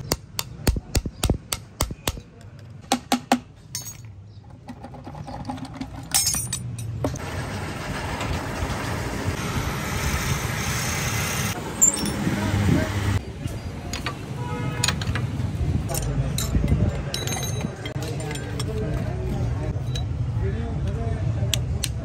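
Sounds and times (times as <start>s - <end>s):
sharp metallic clinks and knocks: 1.5s - 4.6s, 5.6s - 7.2s, 11.7s - 12.5s, 15.9s - 20.3s.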